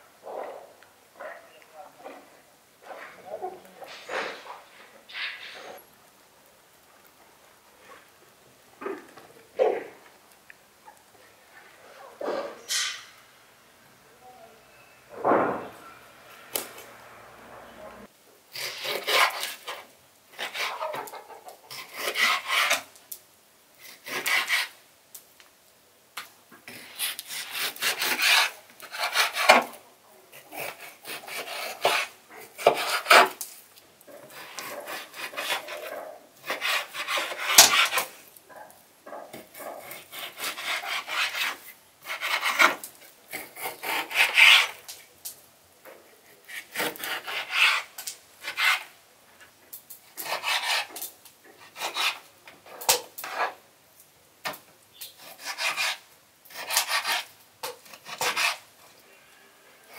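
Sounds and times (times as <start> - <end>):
knife sawing through raw meat: 21.8 - 22.8, 30.5 - 33.2, 39.8 - 42.7, 46.5 - 48.9, 50.2 - 50.9, 55.2 - 57.3.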